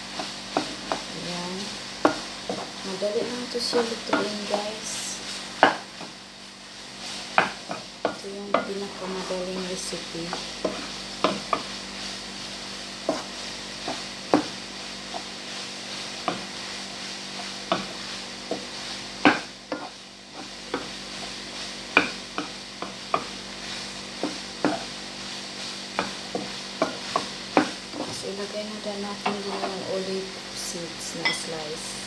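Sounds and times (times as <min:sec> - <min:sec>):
steady sizzle: 0:00.0 - 0:32.0
spatula knocking against pan: 0:19.2 - 0:19.9.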